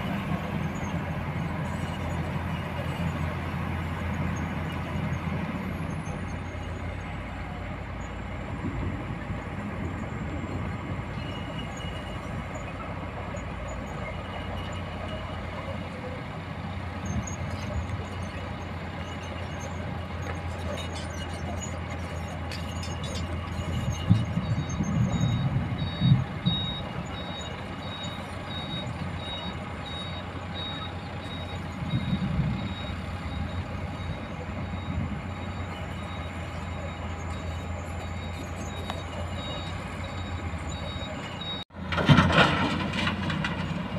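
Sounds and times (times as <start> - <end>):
heavy diesel engines running: 0.0 - 43.9
reversing alarm beeping: 16.7 - 41.7.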